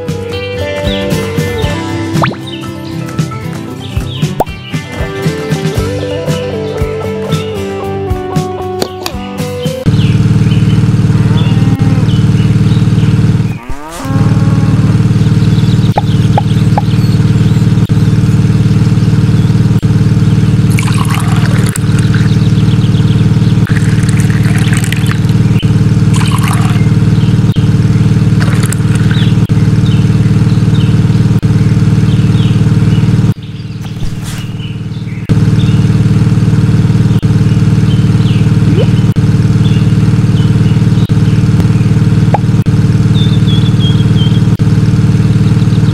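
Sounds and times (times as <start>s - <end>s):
electric motor buzzing drone: 9.9s - 30.6s.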